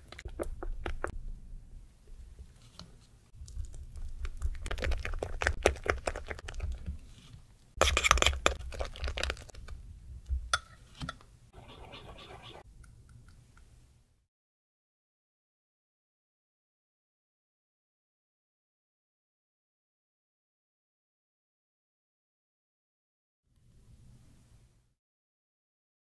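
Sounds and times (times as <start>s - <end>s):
stirring thick batter in bowl: 2.4s - 9.8s.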